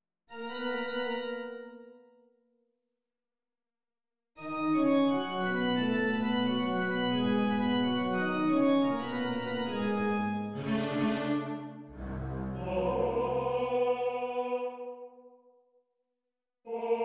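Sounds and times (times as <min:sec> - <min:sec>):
pipe organ playing slow chords: 0:04.5 - 0:13.6
rushing noisy sound: 0:11.9 - 0:13.6.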